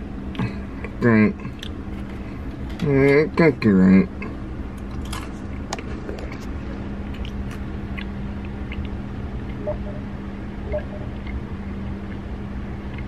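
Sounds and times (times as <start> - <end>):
steady low hum: 0.0 - 13.0
chewing crackles: 7.1 - 9.7.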